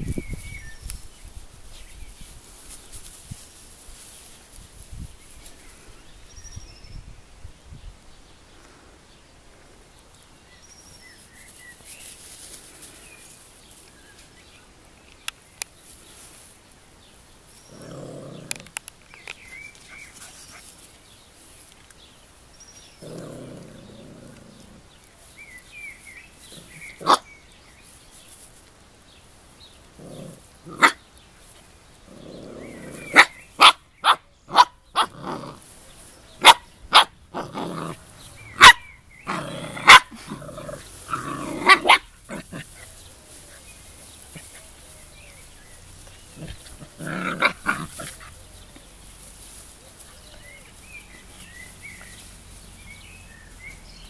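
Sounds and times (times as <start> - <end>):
puppy growls: 17.6 - 18.8, 22.9 - 25.0, 29.9 - 31.0, 32.0 - 33.4, 35.0 - 35.7, 37.3 - 48.9
high puppy barks and yips: 33.1 - 35.1, 36.4 - 37.1, 38.5 - 38.9, 39.8 - 40.2.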